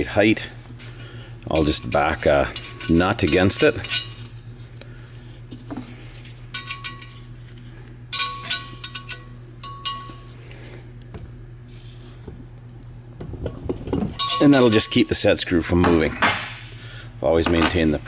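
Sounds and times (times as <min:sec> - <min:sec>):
steady low hum: 0:00.0 - 0:18.0
metal tools clinking on nut: 0:01.5 - 0:04.3, 0:06.5 - 0:07.3, 0:08.1 - 0:10.3, 0:14.2 - 0:15.2.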